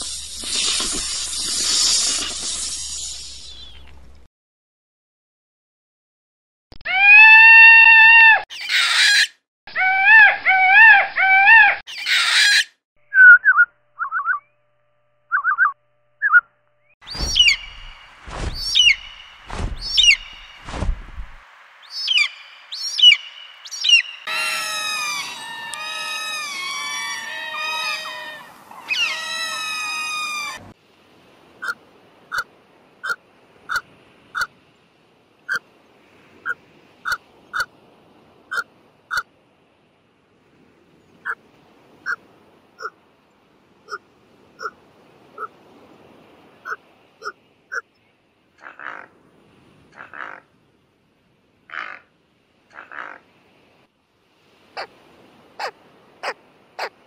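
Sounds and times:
peacock calls: 6.9 - 12.7, 17.1 - 20.6, 22.0 - 30.6
bird chirps: 15.3 - 20.8
high sharp falling bird calls: 17.0 - 30.6
overlapping bird calls: 17.0 - 30.6
low thumps: 17.1 - 21.4
short bird pips: 17.1 - 21.4.

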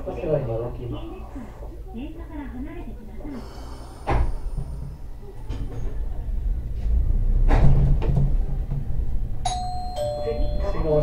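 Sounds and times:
tram motor and wheels rumbling: 3.9 - 11.0.

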